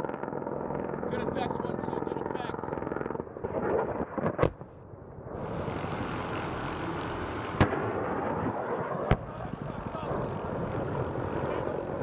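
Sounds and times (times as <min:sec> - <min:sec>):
sharp cracks: 0:00.0 - 0:04.8
helicopter flying overhead: 0:00.0 - 0:12.0.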